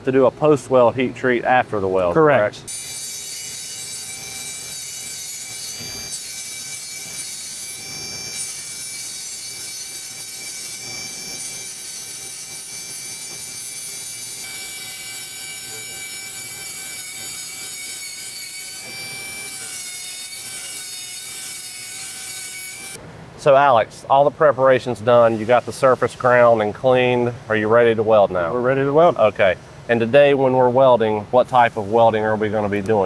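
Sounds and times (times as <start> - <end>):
rotary grinder grinding metal: 2.7 - 23.0.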